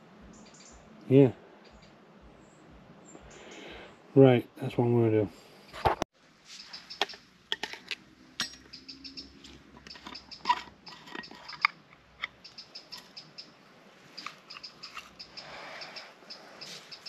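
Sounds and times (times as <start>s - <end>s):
metal pot clinking: 7.0s - 8.8s, 9.4s - 12.4s
high chirps: 8.4s - 10.5s, 11.2s - 17.0s.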